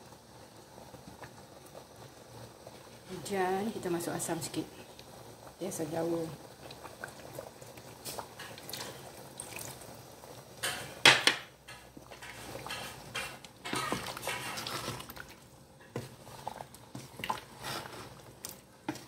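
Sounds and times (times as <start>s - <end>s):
liquid pouring into pot: 6.4s - 10.8s
ladle scraping and stirring: 11.6s - 19.0s.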